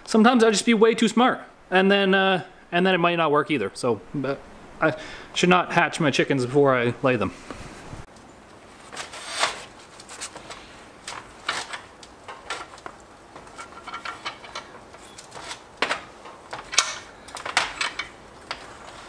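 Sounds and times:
metal parts clinking and scraping: 8.8s - 19.0s
metal clank: 11.4s - 19.0s.

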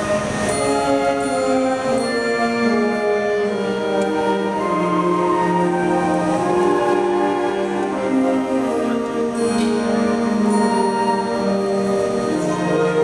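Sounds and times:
concert band playing slow chords: 0.0s - 13.0s
bright high ringing: 0.4s - 3.8s.

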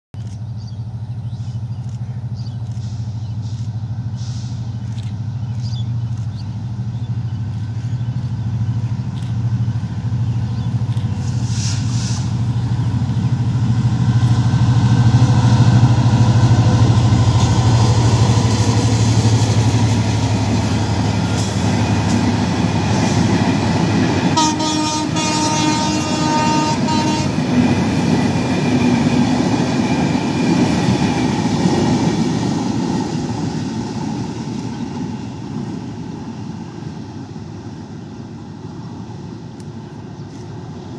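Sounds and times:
locomotive engine drone: 0.2s - 40.9s
train coaches clattering on rails: 12.7s - 36.9s
train horn: 24.3s - 27.7s.

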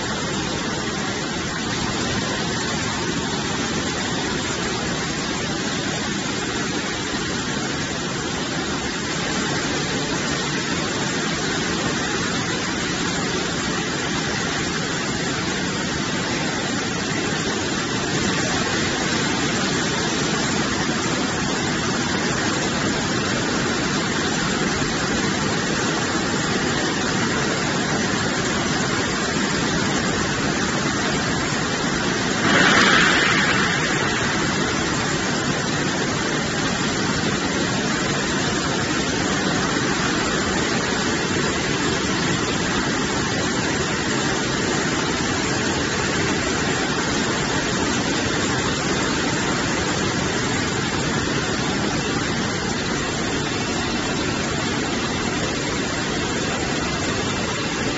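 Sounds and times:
spraying water: 0.0s - 57.9s
machinery running: 32.2s - 37.0s.

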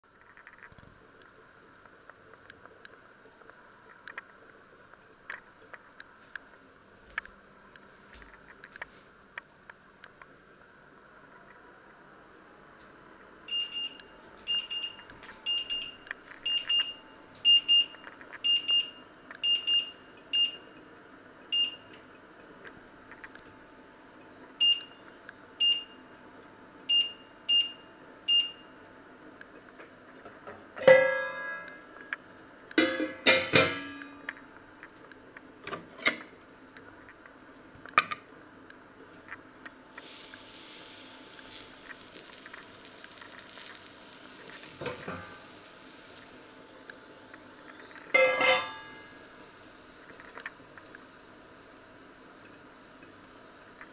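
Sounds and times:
hob touch control beeps: 13.5s - 20.6s, 21.5s - 21.9s, 24.6s - 25.0s, 25.6s - 26.0s, 26.9s - 28.6s
metal pan lid clanking: 32.8s - 34.0s, 48.2s - 49.0s
sausage sizzling in grill pan: 39.9s - 53.9s.

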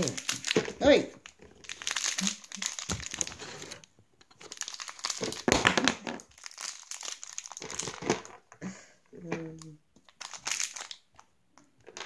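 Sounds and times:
plastic packaging crinkling: 0.0s - 8.4s, 10.0s - 11.2s.

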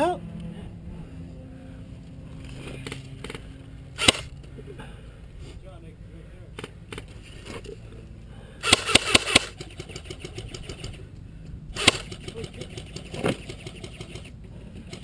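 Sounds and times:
airsoft rifle shots: 4.0s - 4.3s, 8.6s - 11.0s, 11.7s - 14.3s.

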